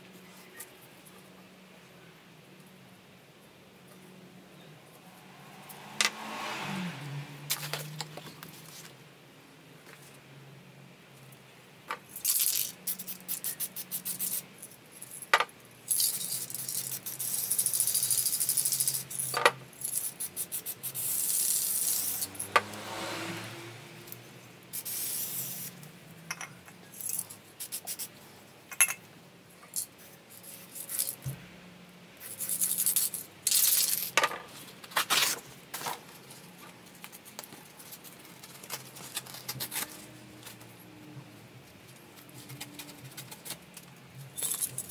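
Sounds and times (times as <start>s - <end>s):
spray can being shaken: 12.2s - 14.4s, 15.9s - 19.3s, 24.8s - 25.7s
spray paint can hissing: 12.2s - 14.4s, 15.9s - 22.3s, 24.7s - 25.8s.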